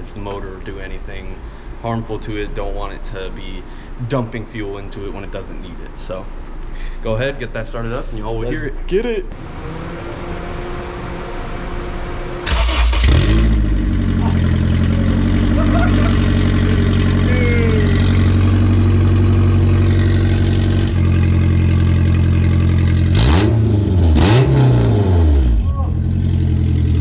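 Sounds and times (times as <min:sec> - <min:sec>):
car engine starting and idling: 0:09.3 - 0:27.0
engine revving: 0:09.3 - 0:27.0.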